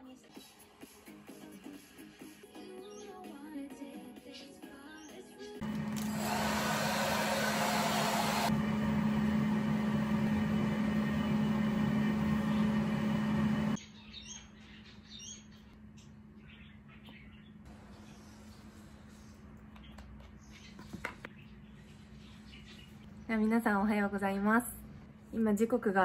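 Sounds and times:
hair dryer running: 0:05.6 - 0:13.8.

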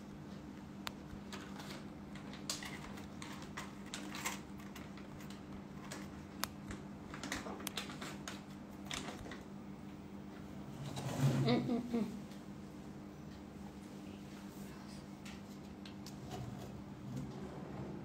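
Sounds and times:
steady low hum: 0:00.0 - 0:18.0.

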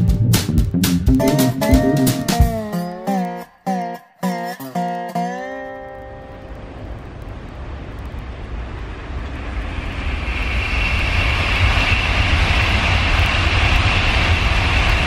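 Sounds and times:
high-speed train passing: 0:06.6 - 0:15.0.

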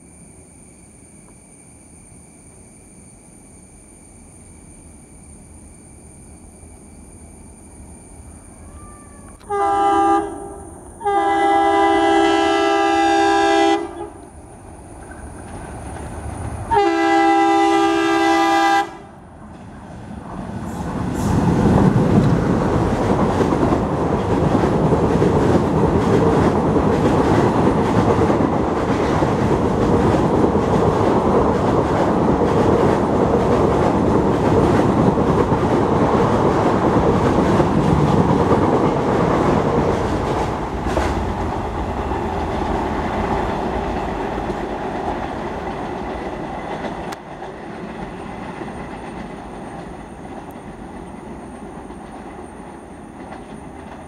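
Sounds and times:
diesel locomotive passing: 0:05.3 - 0:54.0
coaches clattering over rails: 0:15.0 - 0:16.7, 0:19.4 - 0:54.0.

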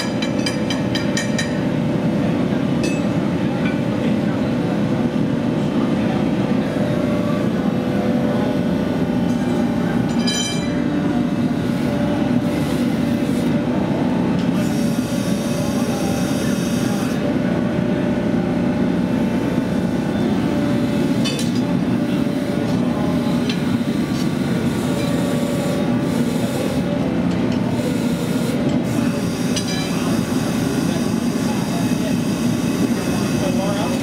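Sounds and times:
hydraulic press droning: 0:00.0 - 0:34.0.

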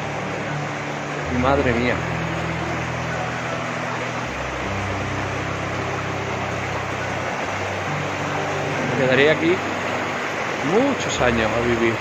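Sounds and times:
low steady hum: 0:00.0 - 0:12.0
river rushing over boulders: 0:00.0 - 0:12.0.

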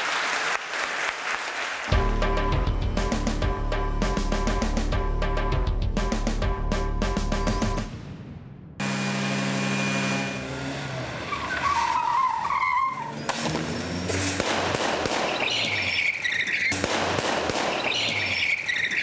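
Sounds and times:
car engines running: 0:08.8 - 0:18.8
car tyres squealing: 0:08.9 - 0:16.8, 0:17.7 - 0:19.0.

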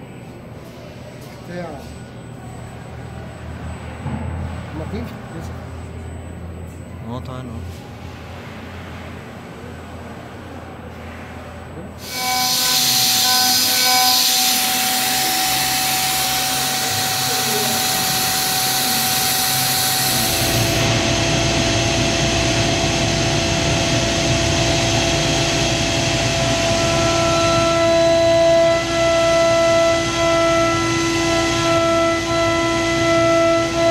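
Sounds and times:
router spindle cutting metal: 0:12.0 - 0:20.9.

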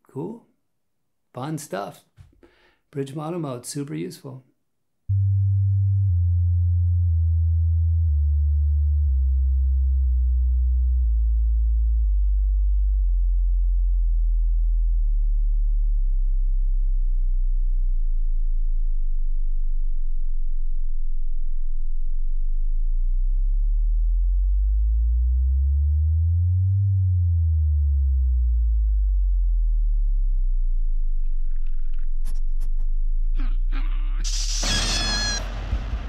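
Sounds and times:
deep electronic tones: 0:05.1 - 0:13.0, 0:23.4 - 0:36.0.

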